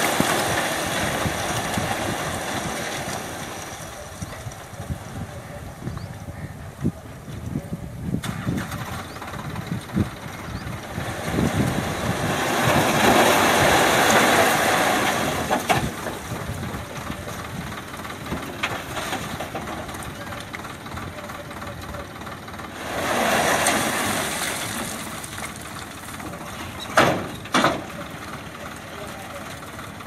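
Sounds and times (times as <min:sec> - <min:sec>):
stones and mud dumping: 0:00.0 - 0:05.1, 0:10.7 - 0:21.1, 0:22.6 - 0:28.9
tractor diesel engine running: 0:00.0 - 0:30.0.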